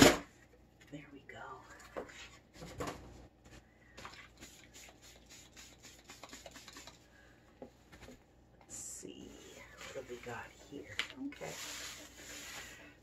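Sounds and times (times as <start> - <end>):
spray bottle misting: 4.4 - 7.0
shredded paper rustling: 9.7 - 13.0.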